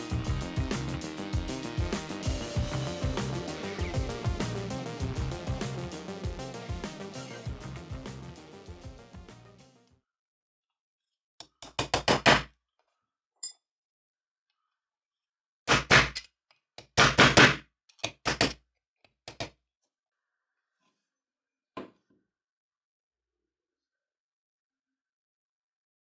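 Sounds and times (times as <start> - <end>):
small steel parts clicking and knocking: 17.9 - 18.6.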